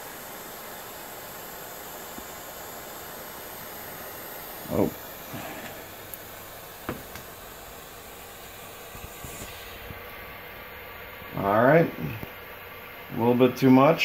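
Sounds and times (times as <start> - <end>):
propane torch hissing: 0.0 - 14.0.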